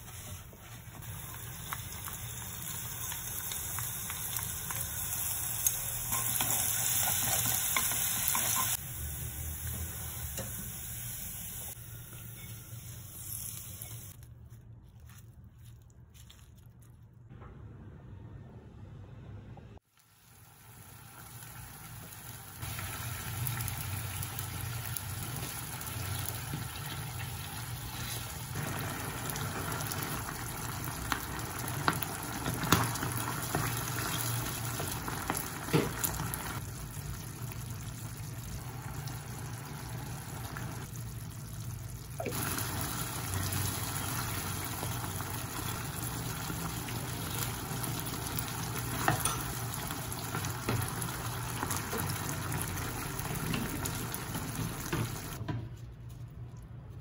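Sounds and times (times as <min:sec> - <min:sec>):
water running: 0:22.5 - 0:55.4.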